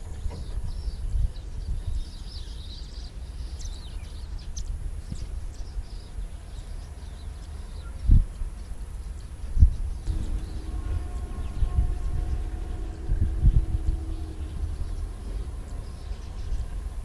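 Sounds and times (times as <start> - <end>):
birds calling: 2.1 - 17.0
distant train rumble: 5.8 - 17.0.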